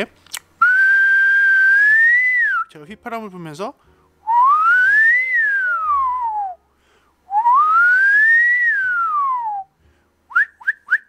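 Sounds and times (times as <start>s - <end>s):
person whistling slides: 0.6s - 2.7s, 4.3s - 6.6s, 7.3s - 9.7s, 10.3s - 11.0s
whistled chirps: 0.6s - 2.8s, 4.3s - 6.6s, 7.3s - 9.7s, 10.3s - 11.0s.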